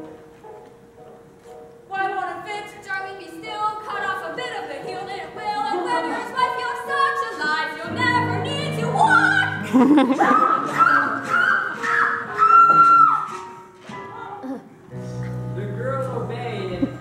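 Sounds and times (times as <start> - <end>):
woman singing: 1.9 - 9.6.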